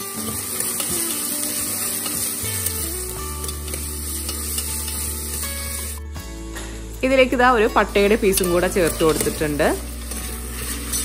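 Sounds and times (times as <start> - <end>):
steel ladle stirring: 0.0 - 5.9, 8.3 - 11.0
vegetables sizzling in hot oil: 0.0 - 6.0, 6.8 - 11.0.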